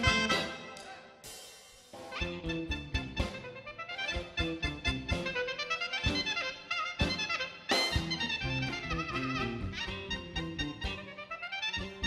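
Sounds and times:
clarinet melody: 0.0s - 0.8s, 2.1s - 12.0s
steady drum beat: 0.0s - 3.6s, 7.0s - 9.1s
bass: 0.0s - 12.0s.

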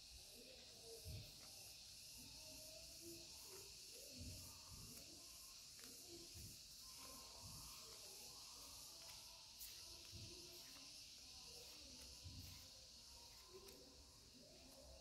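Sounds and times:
faint hiss: 0.0s - 15.0s
paper stickers shuffled: 5.6s - 15.0s.

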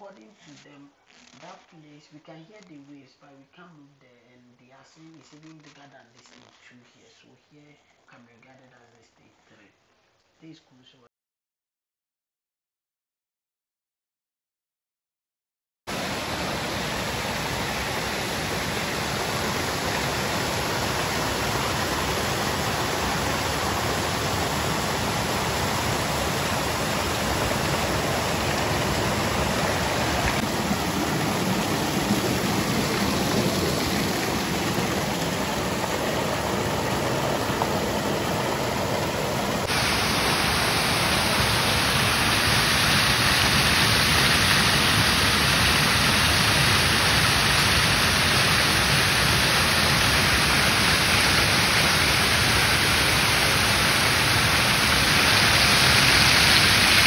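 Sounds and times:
waterfall roaring: 15.9s - 57.0s.

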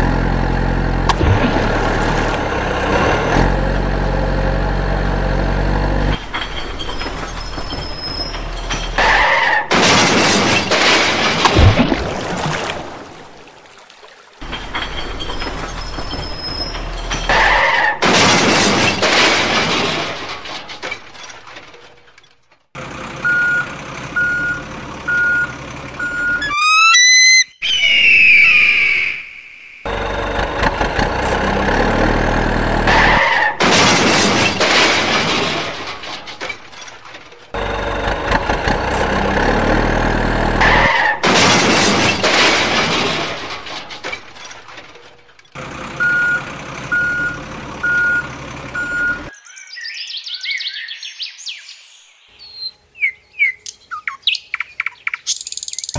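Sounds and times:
diesel truck engine rumbling: 0.0s - 11.4s, 14.4s - 27.2s, 29.9s - 49.3s
squeal: 6.6s - 9.3s, 15.0s - 17.3s
reversing beeper: 23.2s - 29.2s, 46.0s - 49.3s
rising whistle-like sweep: 26.4s - 29.8s.

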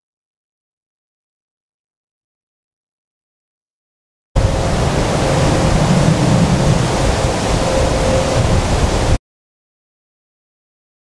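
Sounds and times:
deep rumble: 4.4s - 9.2s
loud rushing noise: 4.4s - 9.2s.

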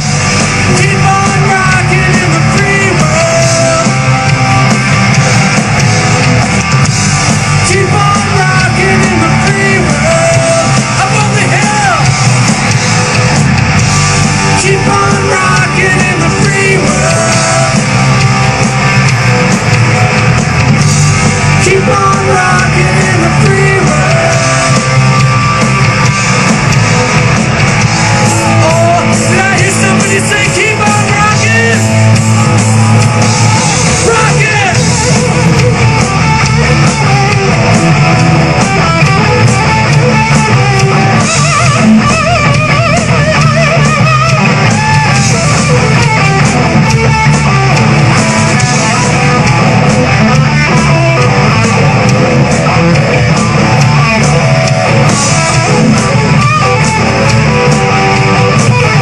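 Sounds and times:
live rock band playing: 0.0s - 59.0s
person singing: 0.6s - 4.6s, 7.6s - 12.1s, 14.5s - 18.4s, 21.6s - 25.2s, 28.3s - 32.7s, 33.3s - 34.9s.

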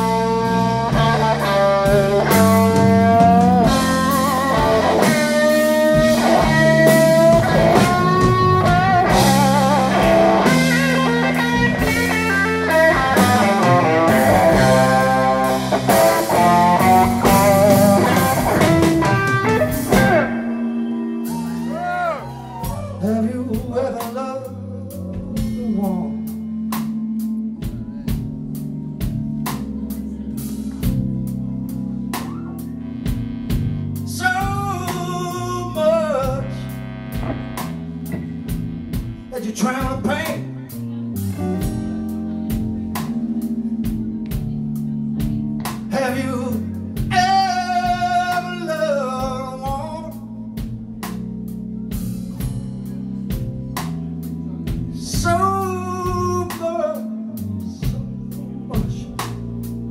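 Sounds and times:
electric guitar solo: 0.0s - 23.1s
bass and drums: 0.0s - 59.9s.

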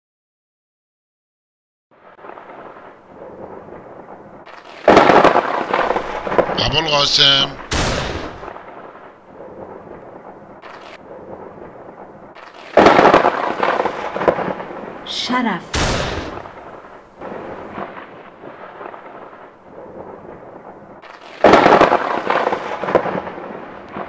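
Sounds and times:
loud blast with rumbling tail: 2.2s - 10.0s, 11.0s - 24.0s
quiet cracks: 4.4s - 6.6s, 10.6s - 11.0s, 12.3s - 14.6s, 21.0s - 23.0s.

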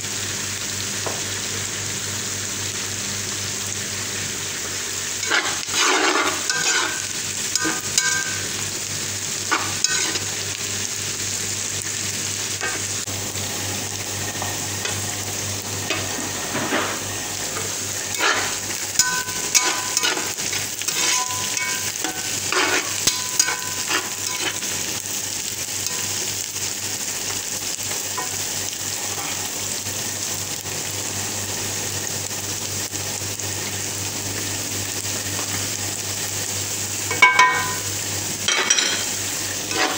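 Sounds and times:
onions sizzling in oil: 0.0s - 39.9s
spatula scraping pan: 5.2s - 8.5s, 9.4s - 10.3s, 15.8s - 24.9s, 29.0s - 29.5s, 38.5s - 39.9s.

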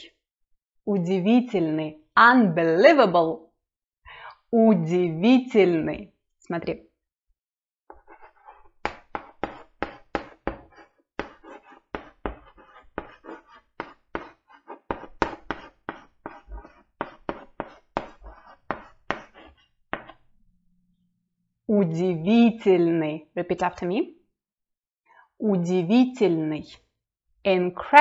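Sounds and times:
chalk tapping and scratching on blackboard: 7.9s - 20.3s.

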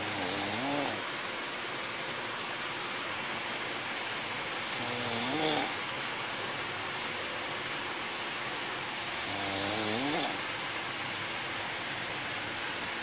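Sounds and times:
person snoring: 0.0s - 1.1s, 4.6s - 5.8s, 9.0s - 10.5s
steady hiss: 0.0s - 13.0s.

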